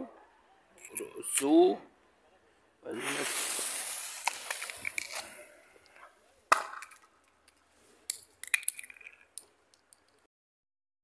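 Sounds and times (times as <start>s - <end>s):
firework fuse hissing: 2.9s - 6.0s
sharp crack: 3.0s - 10.2s.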